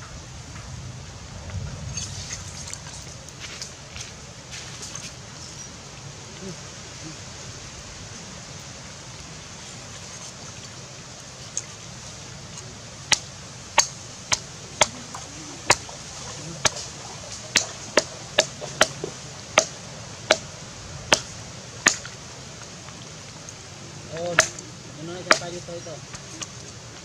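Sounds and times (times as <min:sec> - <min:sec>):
cleaver chopping on wooden board: 0:24.3 - 0:24.6, 0:25.3 - 0:25.5.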